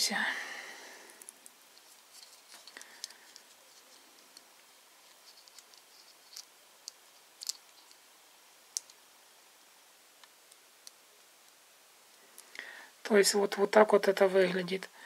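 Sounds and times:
small plastic and metal clicks: 0:05.4 - 0:08.0.

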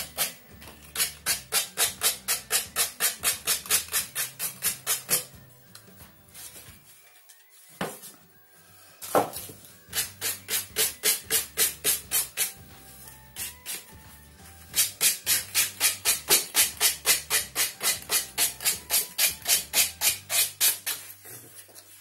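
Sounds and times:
background music: 0:00.0 - 0:22.0
sandpaper rubbing on wood: 0:01.0 - 0:05.2, 0:09.9 - 0:12.6, 0:14.8 - 0:22.0.

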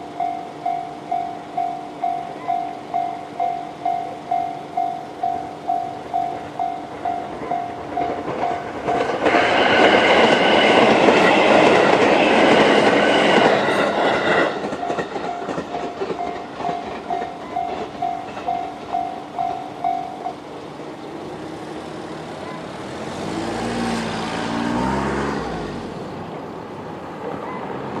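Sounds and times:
level crossing alarm ringing: 0:00.0 - 0:20.6
electric train rushing past: 0:00.0 - 0:28.0
car engine driving away: 0:21.2 - 0:26.4.

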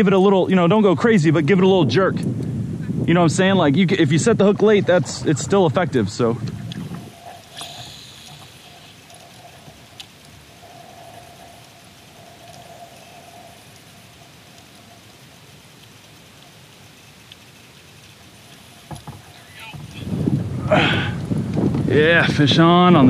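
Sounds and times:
wind and water hiss: 0:00.0 - 0:23.0
fishing reel spool whirring: 0:06.8 - 0:20.2.

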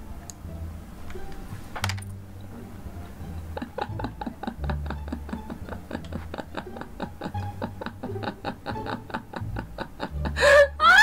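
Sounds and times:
woman laughing: 0:03.4 - 0:11.0.

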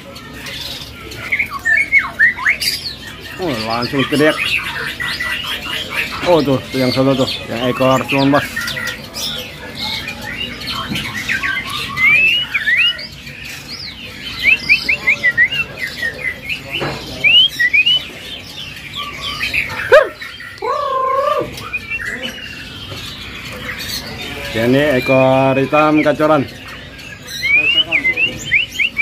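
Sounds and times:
songbirds whistling: 0:00.0 - 0:29.0
harsh wavering bird call: 0:19.0 - 0:22.6.

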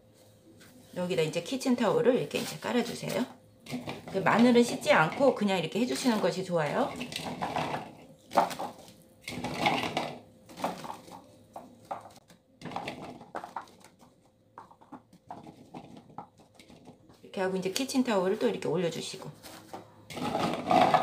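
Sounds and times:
paper towel rustling: 0:17.6 - 0:19.9.

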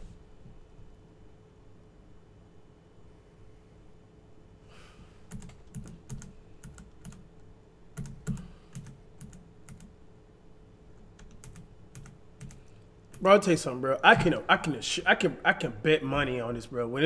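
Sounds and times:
computer keyboard keys clacking: 0:05.3 - 0:07.2, 0:08.0 - 0:09.9, 0:11.2 - 0:13.2.

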